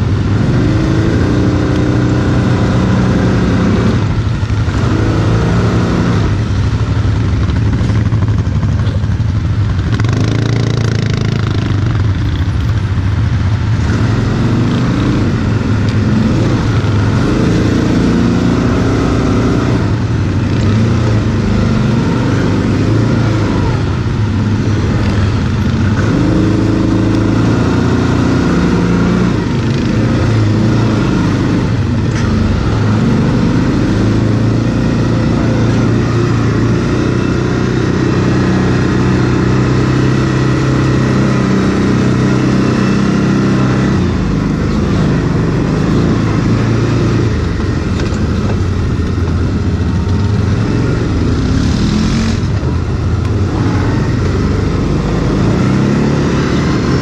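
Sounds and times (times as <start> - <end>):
quad bike engine revving: 0.0 - 57.0.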